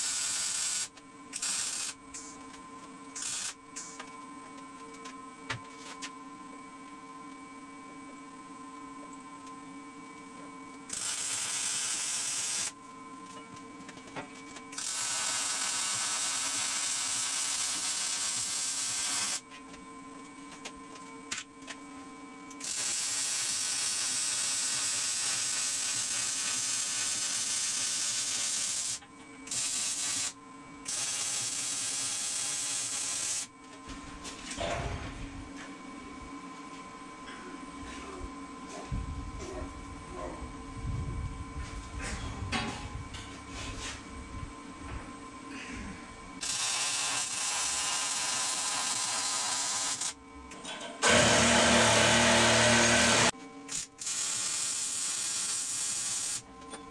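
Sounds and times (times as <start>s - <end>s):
arc welding hiss and crackle: 0.0s - 2.4s, 3.1s - 4.1s, 10.8s - 12.8s, 14.4s - 19.5s, 22.5s - 33.5s, 46.4s - 50.2s, 51.0s - 56.5s
steady hum with tones: 0.0s - 56.9s.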